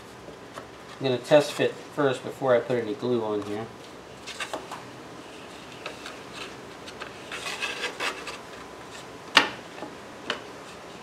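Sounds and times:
wooden blades scraping on plywood: 7.2s - 9.1s.

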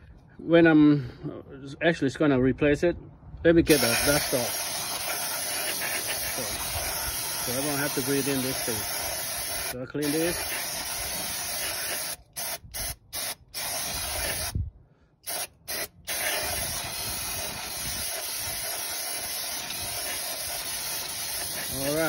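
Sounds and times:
aerosol spray hissing: 3.7s - 14.6s, 15.3s - 22.0s.

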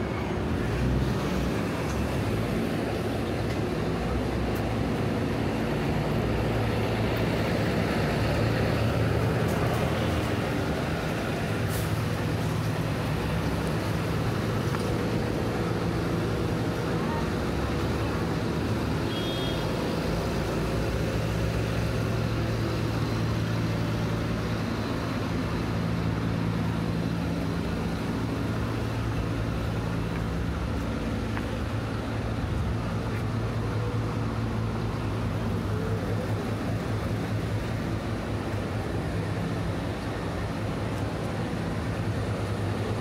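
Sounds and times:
large engine humming: 0.0s - 43.0s
traffic noise: 0.0s - 43.0s.

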